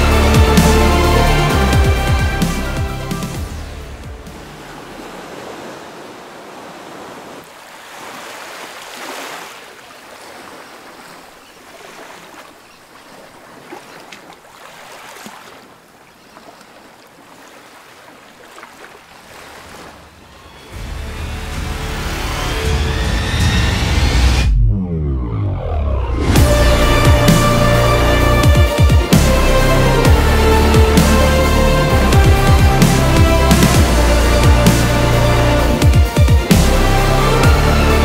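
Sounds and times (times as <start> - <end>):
sea surf washing in: 3.3 - 15.8, 17.0 - 21.0.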